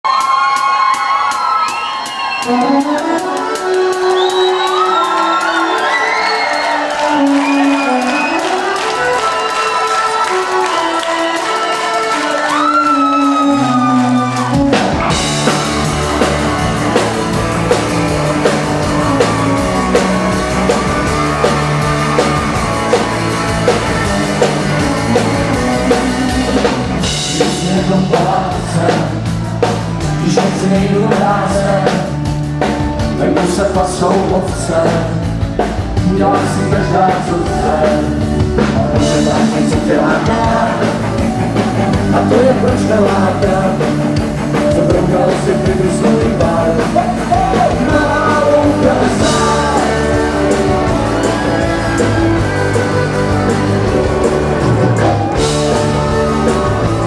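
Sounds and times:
folk-rock band playing: 0.1s - 57.0s
person singing: 17.7s - 57.0s.

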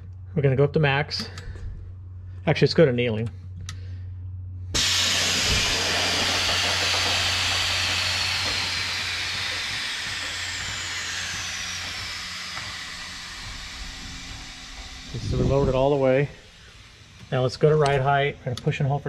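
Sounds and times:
air suspension venting hiss: 4.8s - 18.3s.

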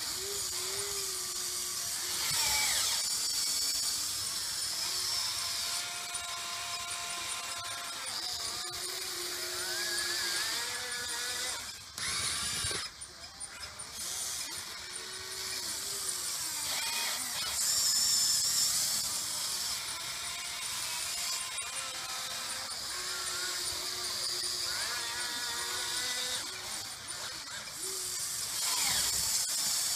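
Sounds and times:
electric motors whining: 0.0s - 29.9s.

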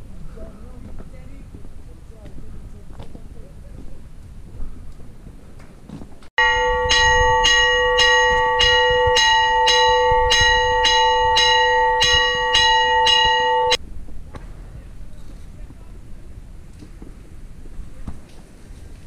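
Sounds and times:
church bell ringing: 6.4s - 13.8s.

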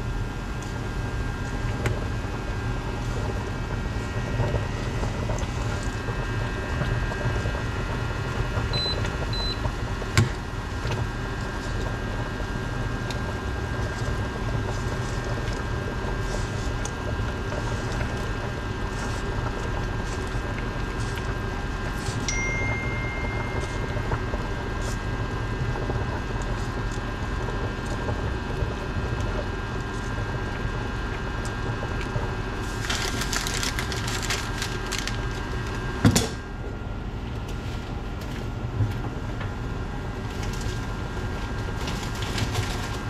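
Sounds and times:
steady mechanical hum: 0.0s - 43.0s
steady high tone: 22.3s - 24.6s.

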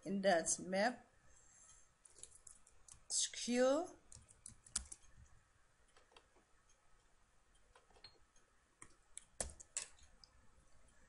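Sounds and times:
computer mouse and keyboard clicks: 4.1s - 5.3s, 5.9s - 6.4s, 7.6s - 10.4s.

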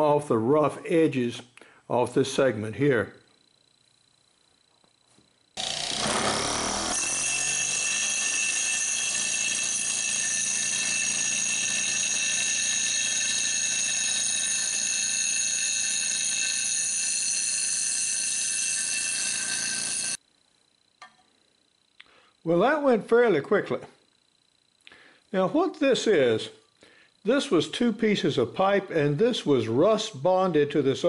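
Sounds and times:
grinder motor hum: 4.6s - 20.2s
grinding wheel whining on metal: 5.6s - 20.2s.

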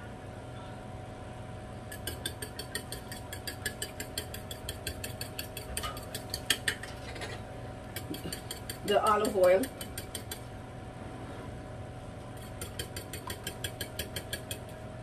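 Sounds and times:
fork beating egg in bowl: 1.9s - 7.0s, 7.8s - 10.5s, 12.4s - 14.8s.

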